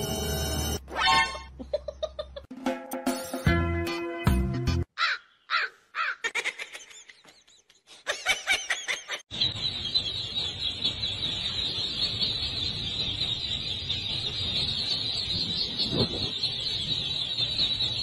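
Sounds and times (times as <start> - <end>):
ducklings peeping: 9.3 - 18.0.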